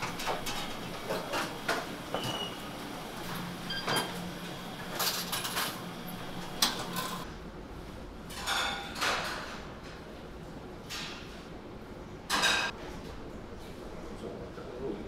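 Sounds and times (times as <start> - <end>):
dishes and cutlery clattering: 0.0 - 2.6, 3.7 - 4.3, 4.9 - 5.8, 6.6 - 7.2, 8.3 - 9.6, 12.3 - 12.8.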